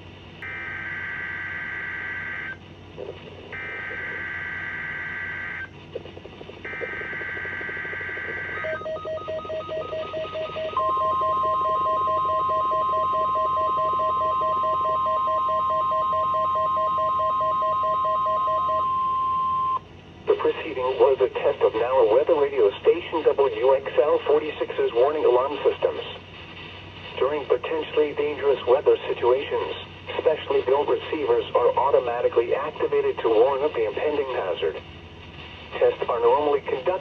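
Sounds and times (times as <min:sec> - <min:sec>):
steady warning alarm tone: 0:00.4 - 0:02.6, 0:03.5 - 0:19.8
rapid pulsing beep: 0:06.3 - 0:19.8
digital header tones: 0:06.6 - 0:19.8.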